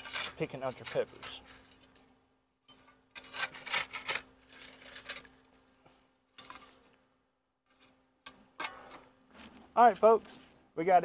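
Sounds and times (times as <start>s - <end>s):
shovel scraping charcoal on metal: 0.0s - 5.7s, 6.4s - 7.0s.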